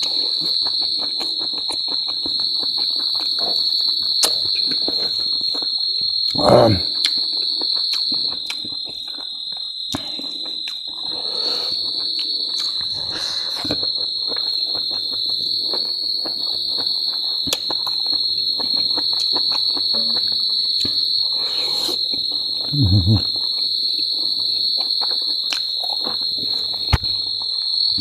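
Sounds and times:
chewing and mouth clicks: 0.0 - 5.8, 7.0 - 21.0, 21.6 - 27.8
high-pitched insect drone: 17.9 - 28.0.

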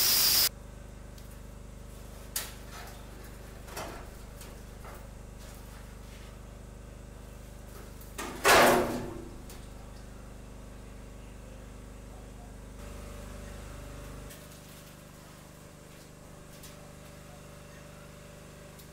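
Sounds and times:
generator running: 0.0 - 0.5.

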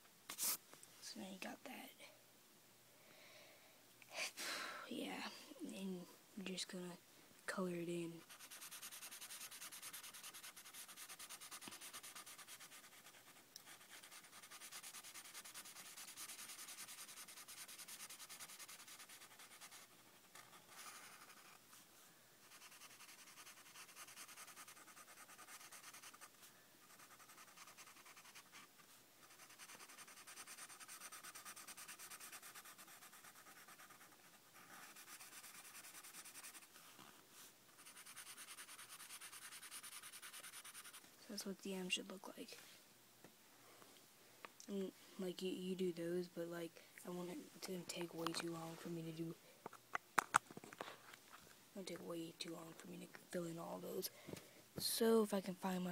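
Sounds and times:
marker scribbling on paper: 8.2 - 21.6, 22.4 - 36.8, 37.8 - 41.0.

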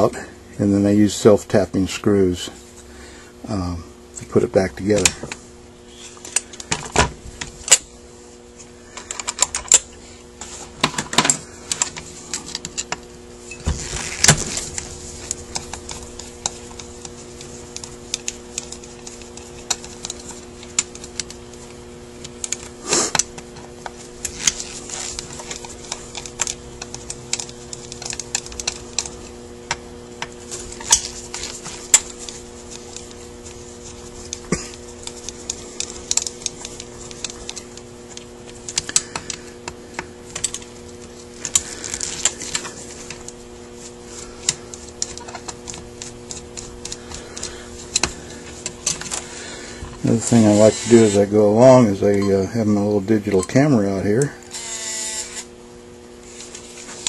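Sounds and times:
screwdriver clicking on metal parts: 15.2 - 23.4, 24.2 - 33.2, 40.3 - 40.7.

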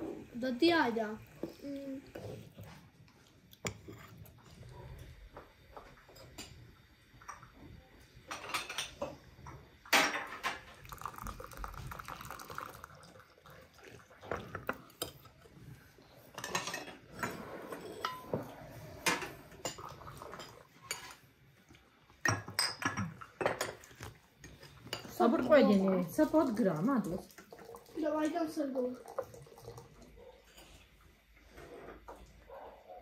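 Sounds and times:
spoons clinking on plates: 16.3 - 18.3, 22.2 - 25.7.

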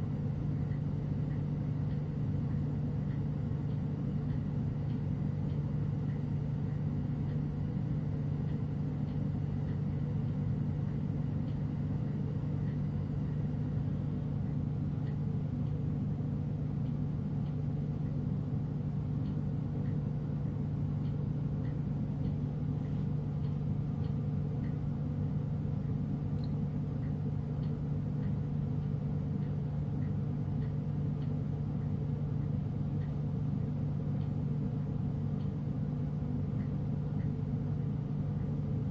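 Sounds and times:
faint light ticks: 0.6 - 7.5, 19.2 - 20.1, 21.0 - 24.8, 25.8 - 33.2, 36.5 - 37.5.

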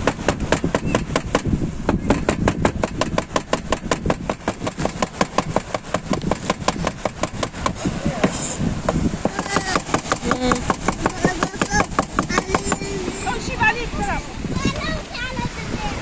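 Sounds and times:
cleaver chopping on cutting board: 2.1 - 12.8.

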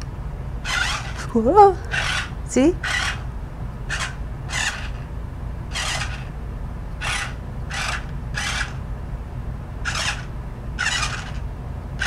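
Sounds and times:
toy electric motor whirring: 0.6 - 3.3, 3.9 - 5.1, 5.7 - 6.4, 7.0 - 8.8, 9.8 - 12.0.

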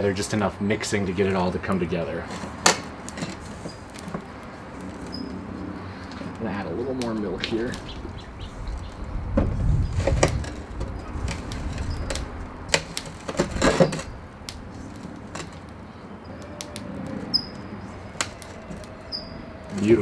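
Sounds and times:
low rumble: 7.3 - 14.9.

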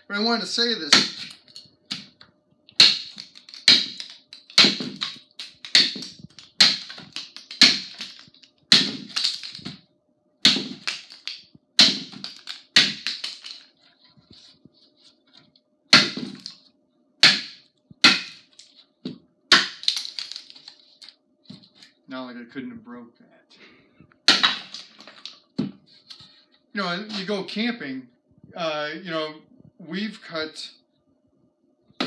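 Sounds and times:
axe chopping wood: 0.9 - 2.2, 2.8 - 9.8, 10.4 - 13.6, 15.9 - 16.5, 17.2 - 18.5, 19.5 - 20.4, 24.3 - 25.7.

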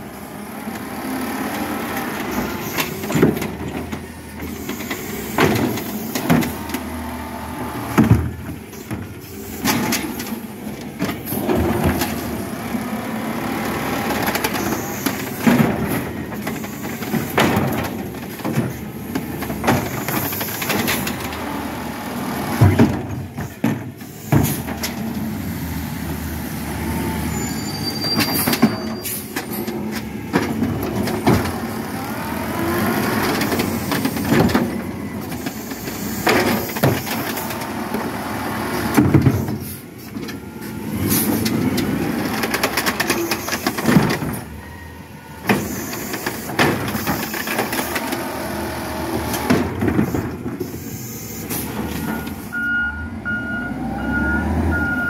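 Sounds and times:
garbage truck engine running: 0.0 - 55.0
bins banging and knocking: 2.2 - 6.9, 7.8 - 12.5, 13.4 - 21.6, 22.4 - 25.3, 27.8 - 44.6, 45.4 - 50.8.

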